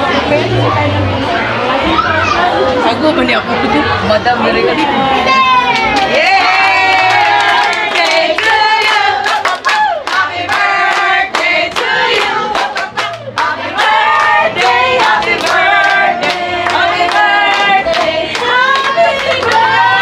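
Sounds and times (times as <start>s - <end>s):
group singing a birthday song: 6.1s - 20.0s.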